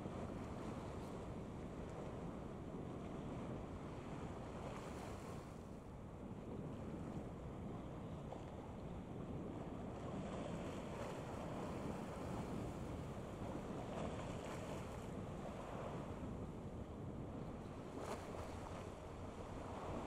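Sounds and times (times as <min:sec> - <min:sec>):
wind on microphone: 0:06.2 - 0:20.0.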